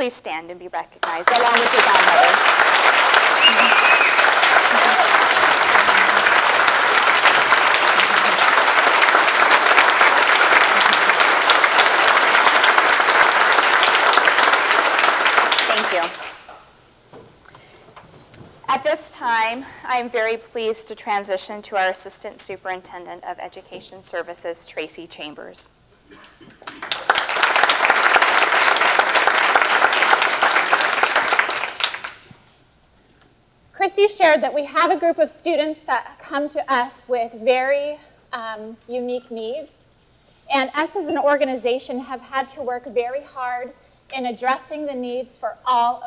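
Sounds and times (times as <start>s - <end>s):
audience applauding: 1.0s - 16.5s, 26.6s - 32.4s.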